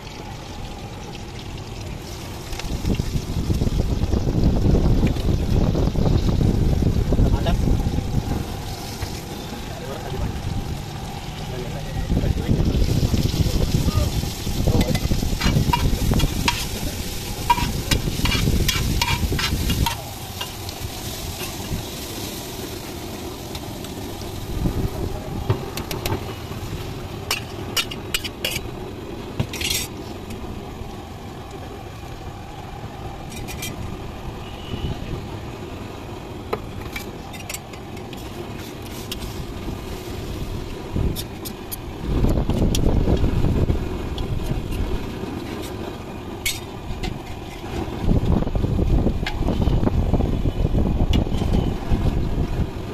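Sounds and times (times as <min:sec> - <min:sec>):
food sizzling: 0:00.0 - 0:50.2
metal spatula scraping and tapping: 0:14.8 - 0:16.8, 0:17.4 - 0:20.6, 0:27.3 - 0:28.7, 0:46.4 - 0:47.6.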